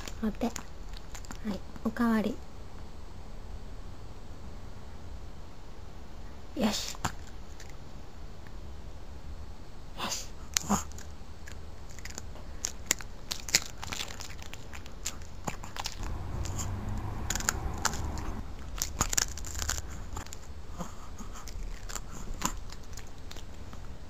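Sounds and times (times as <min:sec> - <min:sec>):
dog crunching a cookie: 0:00.0 - 0:01.5, 0:10.5 - 0:16.0, 0:18.6 - 0:24.0
teeth clicks: 0:10.5 - 0:16.0.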